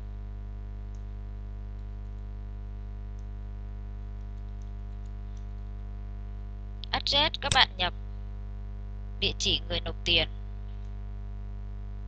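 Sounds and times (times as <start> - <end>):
electrical mains hum: 0.0 - 12.0
keyboard typing clicks: 4.2 - 5.8.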